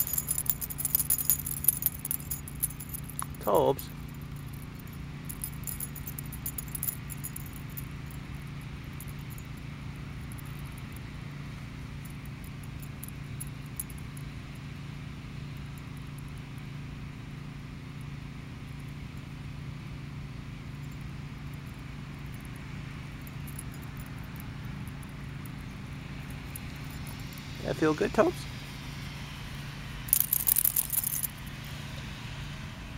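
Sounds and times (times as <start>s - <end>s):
metal dog tags jingling: 0.0s - 11.0s, 12.0s - 14.3s, 23.2s - 28.3s, 30.1s - 31.4s
steady low hum: 0.0s - 32.9s.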